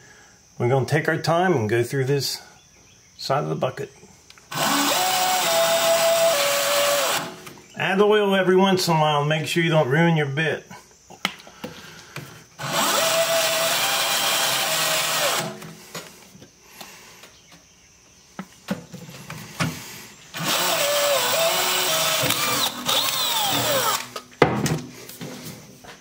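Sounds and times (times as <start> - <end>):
cordless drill drilling steel: 4.5 - 7.4, 12.6 - 15.6, 20.3 - 24.2.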